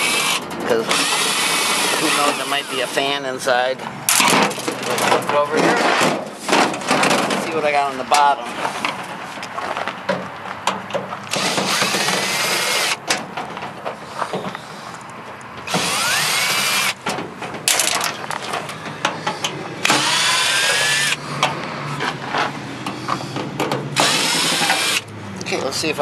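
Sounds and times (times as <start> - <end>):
cordless drill whining: 0.0 - 3.0, 11.3 - 13.0, 15.7 - 17.0, 19.8 - 21.2, 24.0 - 25.1
handling clicks and rattles: 17.0 - 20.0.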